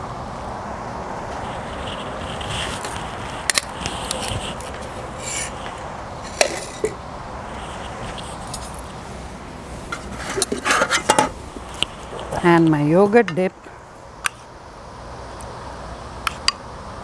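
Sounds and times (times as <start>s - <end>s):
steady background hiss: 0.0s - 17.0s
dishes and utensils scraping: 6.2s - 7.0s, 9.9s - 11.4s.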